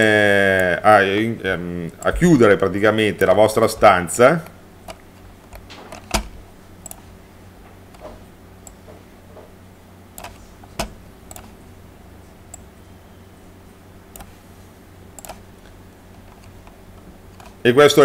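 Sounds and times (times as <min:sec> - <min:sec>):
low steady hum: 0:00.0 - 0:18.0
mouse and keyboard clicks: 0:10.2 - 0:11.5, 0:15.2 - 0:15.4.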